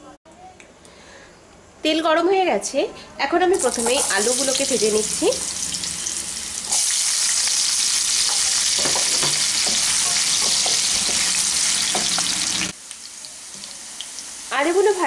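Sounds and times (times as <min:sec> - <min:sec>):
potatoes sizzling in oil: 0:03.5 - 0:15.0
wooden spatula scraping and tapping: 0:08.3 - 0:12.5.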